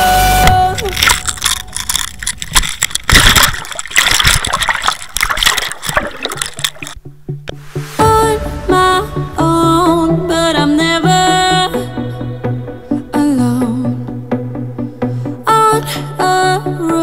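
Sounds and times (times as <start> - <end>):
water sloshing and gurgling: 0.7 - 10.7.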